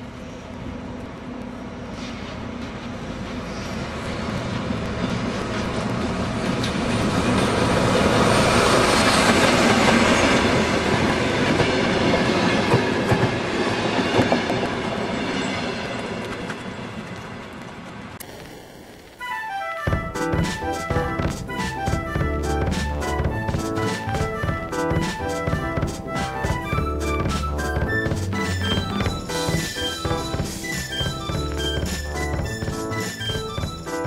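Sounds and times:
train passing: 0.0s - 34.0s
wheels clicking over track: 19.9s - 34.0s.

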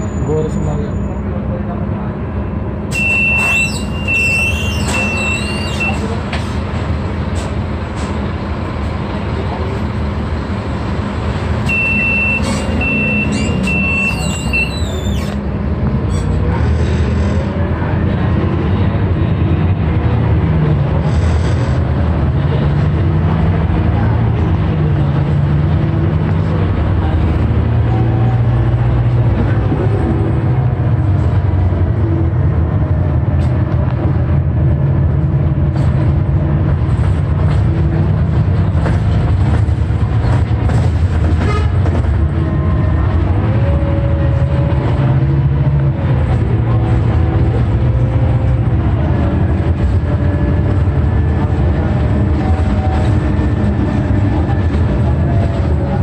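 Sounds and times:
bus engine droning: 0.0s - 56.0s
short high electronic beeps: 2.9s - 6.0s, 11.6s - 14.9s.

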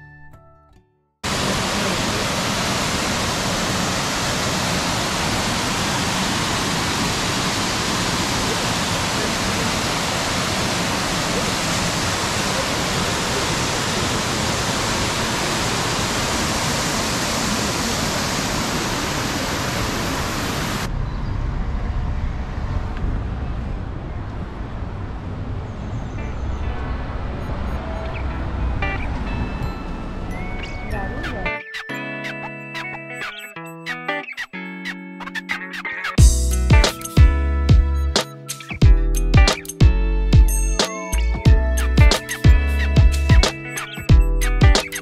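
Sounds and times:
waterfall roaring: 1.2s - 20.9s
low rumbling street ambience: 1.2s - 31.5s.

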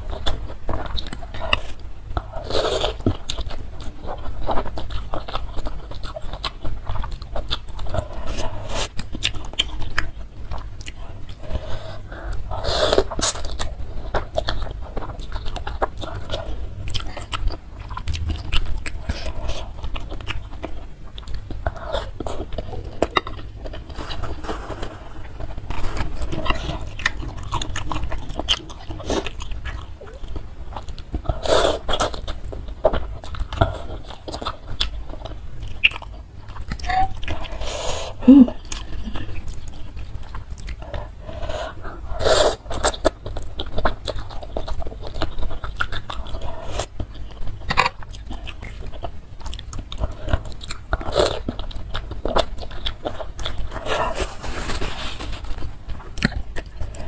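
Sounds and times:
chewing with wet mouth clicks: 0.0s - 24.2s, 25.7s - 37.6s, 38.5s - 41.8s, 42.6s - 54.2s, 55.8s - 57.0s
steady low hum: 0.0s - 57.0s.

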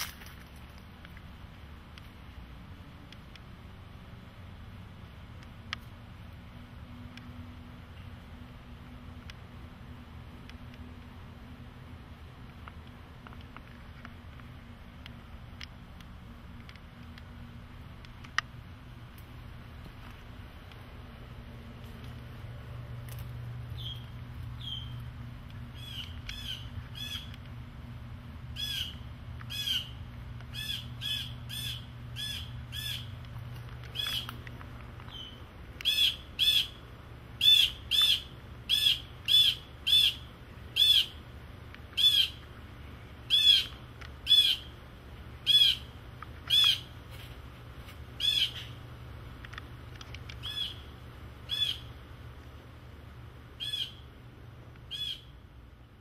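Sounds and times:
steady low hum: 0.0s - 56.0s
blue jay scolding calls: 23.7s - 27.4s, 28.5s - 33.2s, 33.8s - 34.5s, 35.1s - 36.8s, 37.4s - 41.2s, 41.9s - 42.5s, 43.2s - 44.8s, 45.4s - 47.0s, 48.2s - 48.8s, 50.3s - 51.9s, 53.6s - 54.1s, 54.9s - 55.4s.

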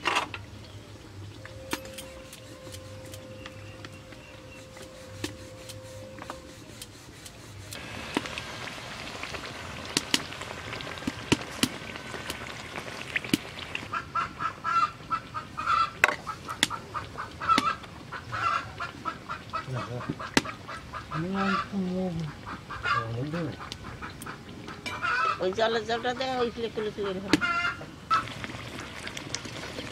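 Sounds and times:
low drawn-out bird calls: 0.6s - 6.8s
hot oil sizzling in a wok: 6.6s - 14.0s, 28.1s - 29.9s.

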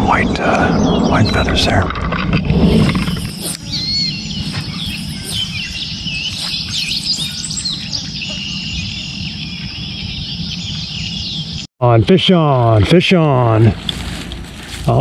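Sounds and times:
birds chirping and singing: 0.0s - 11.7s
low rumble of outdoor noise: 0.0s - 15.0s
steady high thin tone: 2.8s - 7.9s.

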